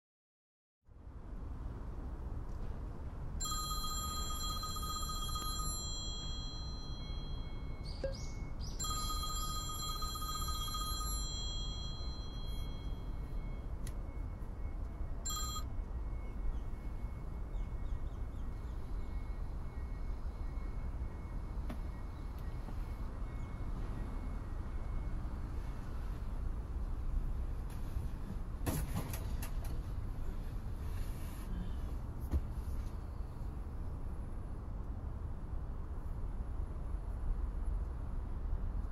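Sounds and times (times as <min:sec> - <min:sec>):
phone alarm ringing: 0:03.4 - 0:16.4.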